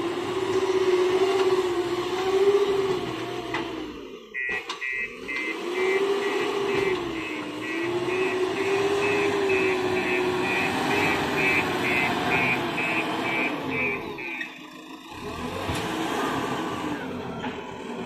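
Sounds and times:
diesel engine revving: 0:00.0 - 0:18.0
reversing alarm beeping: 0:04.3 - 0:15.6.

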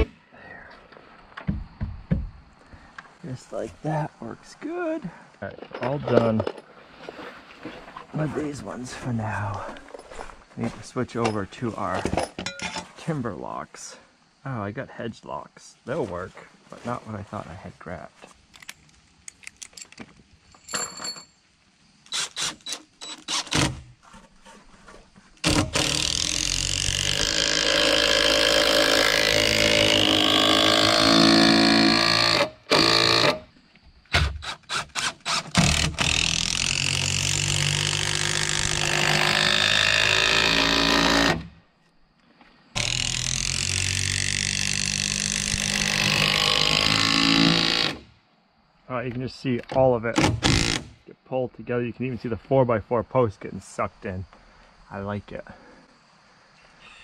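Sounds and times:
impact driver hammering screws: 0:22.1 - 0:23.8, 0:25.4 - 0:33.4, 0:34.1 - 0:41.4.

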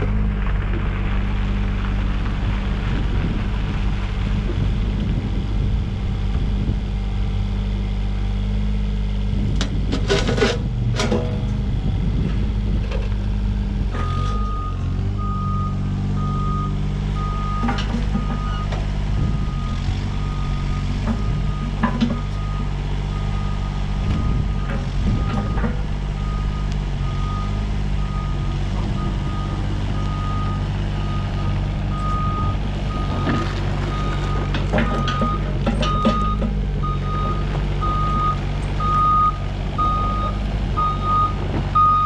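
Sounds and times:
excavator diesel engine: 0:00.0 - 0:42.0
backup alarm beeping: 0:19.3 - 0:25.6.

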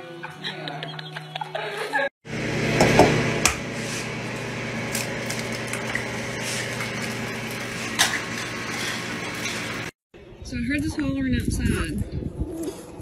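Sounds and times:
egg sizzling in frying pan: 0:04.1 - 0:10.0.

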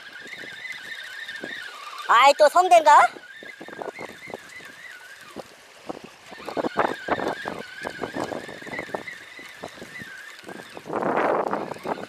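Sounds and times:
fishing reel cranking: 0:00.0 - 0:12.0.

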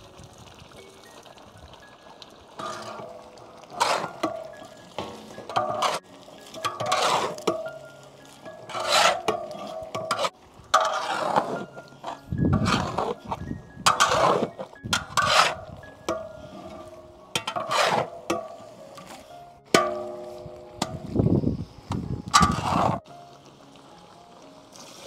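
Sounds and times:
spices frying in oil: 0:00.0 - 0:16.1, 0:23.0 - 0:25.0
soft background music: 0:00.0 - 0:25.0
metal spatula scraping a pan: 0:02.6 - 0:21.0, 0:22.3 - 0:23.0.

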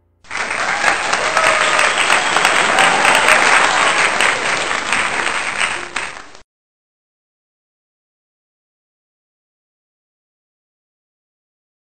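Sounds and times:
crowd applause: 0:00.3 - 0:06.4.

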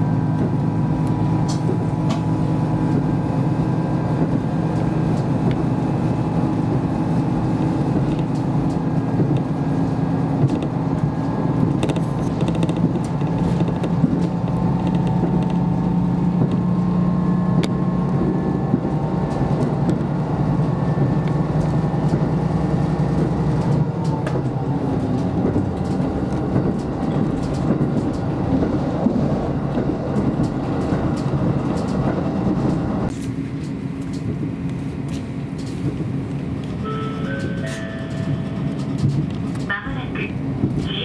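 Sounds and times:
diesel railcar engine drone: 0:00.0 - 0:41.0
wheel and rail noise: 0:00.0 - 0:41.0.

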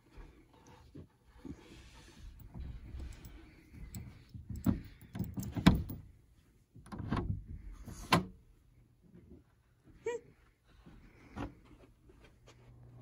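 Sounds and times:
doorknob turning and rattling: 0:04.0 - 0:06.1.

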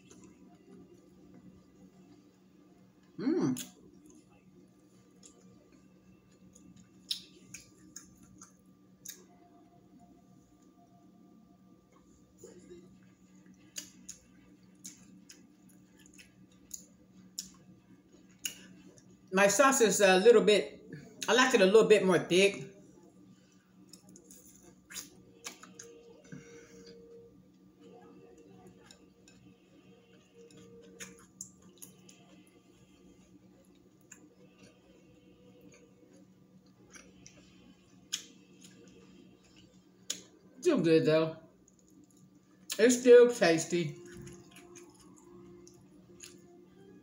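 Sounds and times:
faint steady hum: 0:00.0 - 0:47.0
quiet chewing: 0:02.9 - 0:09.5, 0:11.9 - 0:19.2, 0:23.4 - 0:40.5, 0:41.6 - 0:42.8, 0:44.0 - 0:46.9
wet eating clicks and smacks: 0:05.0 - 0:09.4, 0:13.0 - 0:17.7, 0:23.8 - 0:26.0, 0:30.1 - 0:32.3, 0:35.6 - 0:40.4, 0:41.6 - 0:42.8, 0:44.0 - 0:46.5
soft mouth clicks and smacks: 0:06.6 - 0:09.2.

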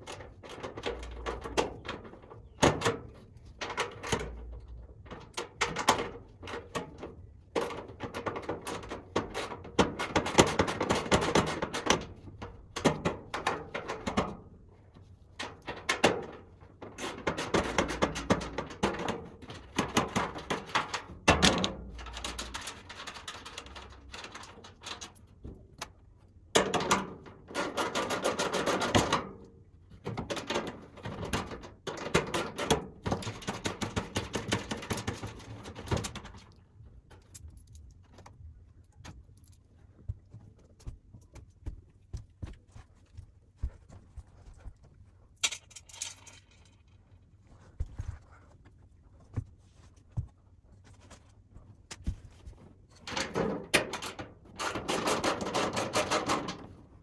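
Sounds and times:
clicking and clattering of tools: 0:44.2 - 0:48.2.

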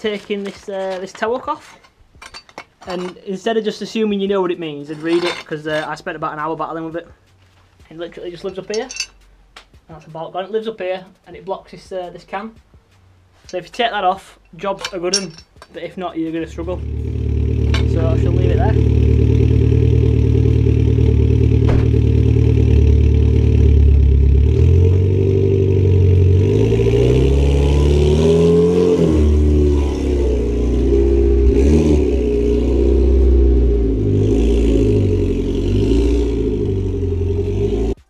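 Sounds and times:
car engine idling and revving: 0:16.3 - 0:38.0.

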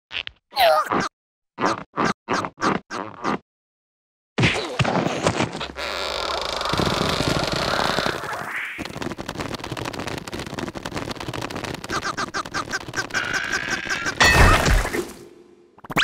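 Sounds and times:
rapid crackling rattle: 0:06.6 - 0:14.2.

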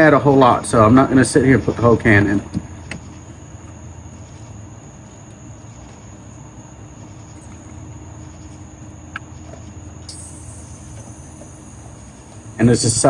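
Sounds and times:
low hum: 0:00.0 - 0:13.0
high-pitched trill: 0:10.1 - 0:13.0.

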